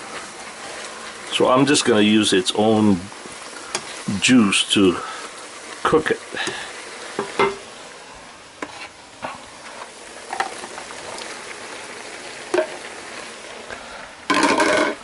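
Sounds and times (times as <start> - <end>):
meat sizzling in a frying pan: 0.0 - 15.0
plastic spatula scraping a pan: 8.6 - 10.5
clatter of vegetables in pan: 10.2 - 10.9, 12.5 - 12.8, 14.3 - 15.0.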